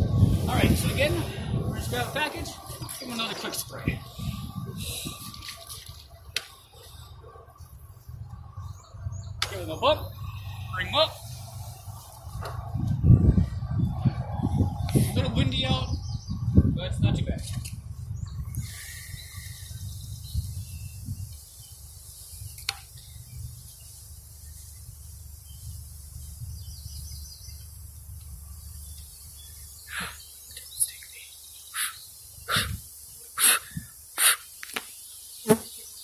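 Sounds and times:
wind rumble on microphone: 0:00.0 - 0:30.1, 0:32.4 - 0:32.9, 0:33.6 - 0:34.0.

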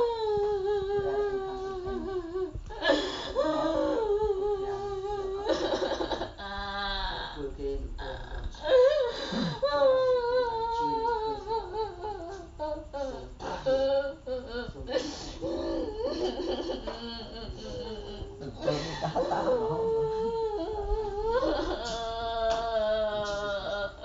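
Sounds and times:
girl sobbing: 0:00.0 - 0:24.0.

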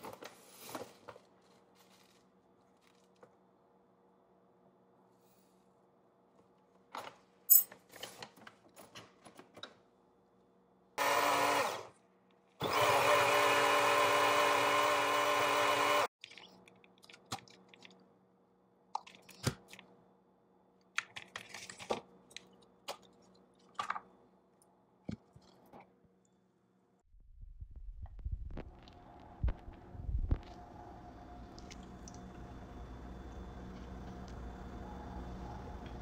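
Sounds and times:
blender motor running: 0:11.0 - 0:11.9, 0:12.6 - 0:16.1.

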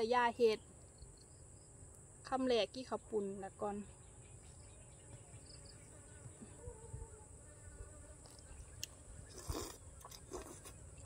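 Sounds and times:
insect chorus drone: 0:00.0 - 0:11.0
mouth noise eating noodles: 0:09.2 - 0:11.0.

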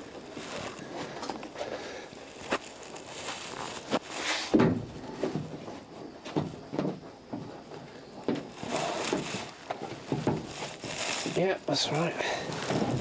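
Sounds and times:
wooden knocks and scraping: 0:04.4 - 0:11.4, 0:12.4 - 0:13.0.

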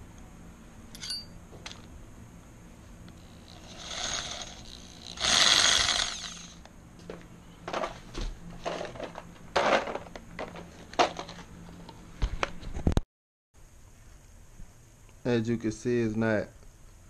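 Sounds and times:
power drill whirring: 0:03.2 - 0:06.6.

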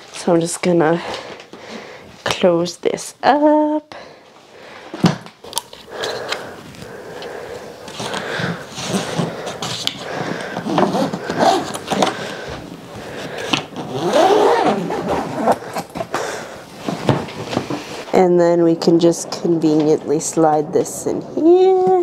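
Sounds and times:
suitcase zipper rasping: 0:07.9 - 0:12.3, 0:13.3 - 0:16.1
zipper clicks: 0:13.8 - 0:15.9.

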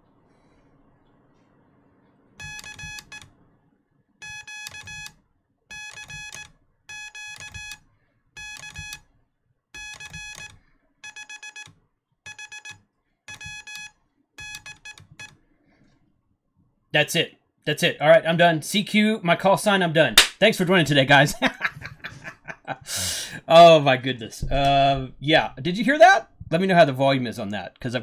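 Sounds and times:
morse code beeps: 0:02.4 - 0:03.2, 0:04.2 - 0:05.1, 0:05.7 - 0:07.8, 0:08.4 - 0:09.0, 0:09.8 - 0:11.7, 0:12.3 - 0:15.3.

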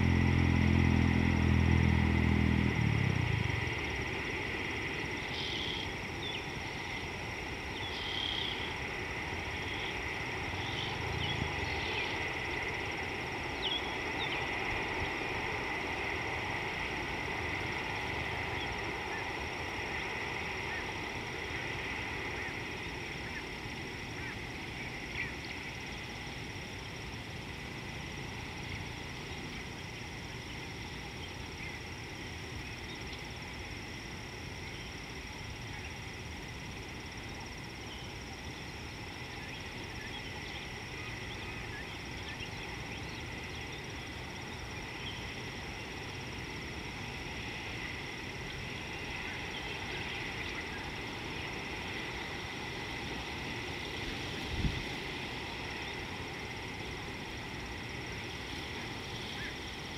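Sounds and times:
high-pitched hum: 0:00.0 - 0:04.1
faint chirps: 0:05.1 - 0:08.8.

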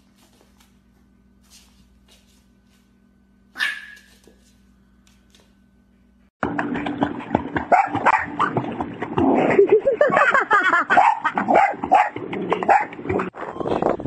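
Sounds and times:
dog barking and yipping: 0:03.6 - 0:04.3, 0:07.7 - 0:08.5, 0:10.9 - 0:13.0
splashing in water: 0:06.4 - 0:09.9.

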